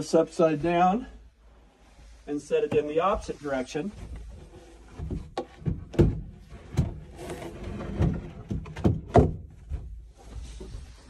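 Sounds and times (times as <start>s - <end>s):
chair knocking and bumping: 4.9s - 7.1s, 7.8s - 10.0s
chair scraping: 6.5s - 8.8s.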